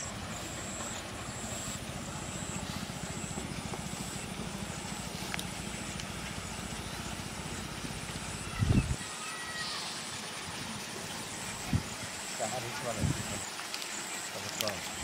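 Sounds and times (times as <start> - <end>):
low engine throb: 0.0 - 8.6
faint high chirping: 8.3 - 10.2.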